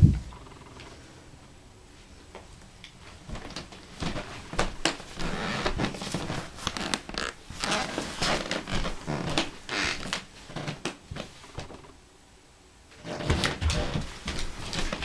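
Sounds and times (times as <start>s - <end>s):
clothing rustling: 3.0s - 11.9s, 12.9s - 15.0s
footsteps on a hardwood floor: 3.1s - 11.9s, 13.0s - 15.0s.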